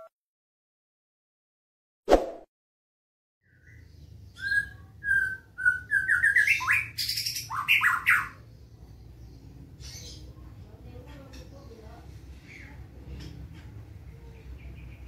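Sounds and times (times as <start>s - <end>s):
bird singing whistled notes: 3.4s - 8.4s.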